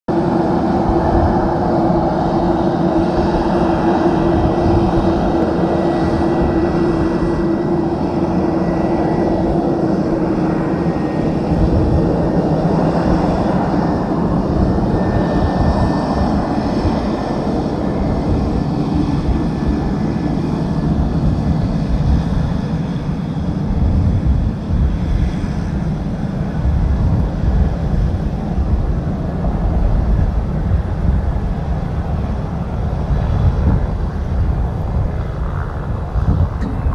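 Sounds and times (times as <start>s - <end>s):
turboprop aircraft engines running: 0.1s - 36.9s.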